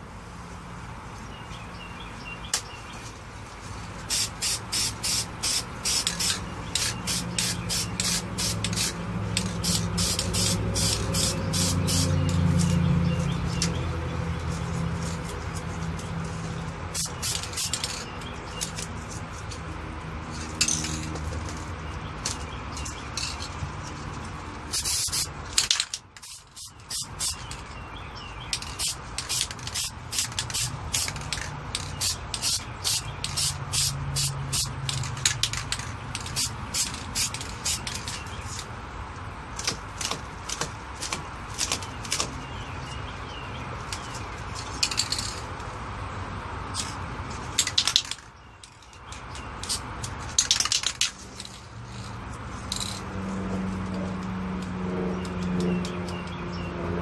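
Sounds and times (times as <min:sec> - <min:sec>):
spray paint can hissing: 0:04.0 - 0:12.8, 0:16.9 - 0:18.0, 0:24.7 - 0:27.6, 0:28.6 - 0:38.2, 0:49.6 - 0:50.8.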